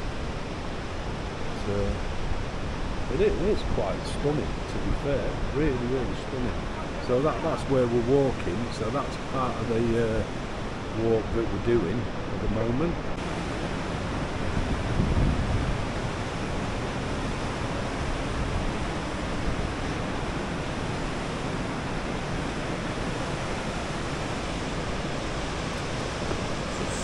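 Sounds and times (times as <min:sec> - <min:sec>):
low rushing noise: 0:13.0 - 0:27.0.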